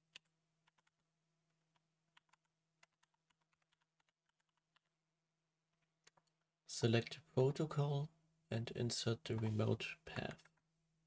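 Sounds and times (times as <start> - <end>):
computer keyboard typing: 0.0 - 1.1, 1.7 - 5.0.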